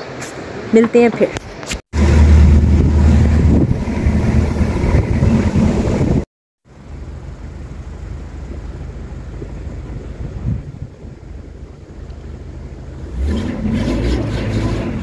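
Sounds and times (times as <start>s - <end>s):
vehicle engine rumble: 1.4s - 15.0s
wind buffeting microphone: 2.0s - 6.3s, 9.3s - 12.1s.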